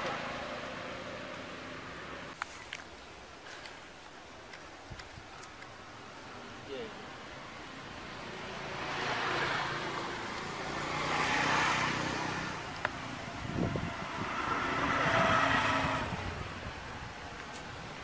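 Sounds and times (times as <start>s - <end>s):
vehicles passing by: 0.0s - 18.0s
low engine hum: 8.0s - 18.0s.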